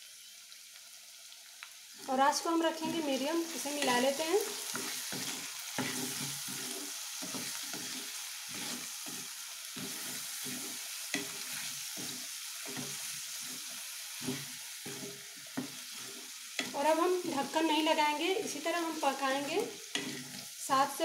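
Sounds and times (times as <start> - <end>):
vegetables sizzling in oil: 0.0 - 21.0
spatula scraping pan: 2.8 - 17.6, 19.6 - 20.5.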